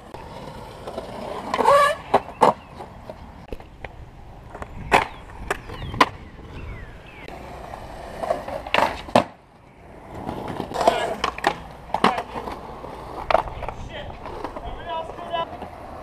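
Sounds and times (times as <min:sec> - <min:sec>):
skateboard clacking on ground: 0:00.0 - 0:06.2, 0:07.3 - 0:16.0
skateboard wheels rolling: 0:00.0 - 0:16.0.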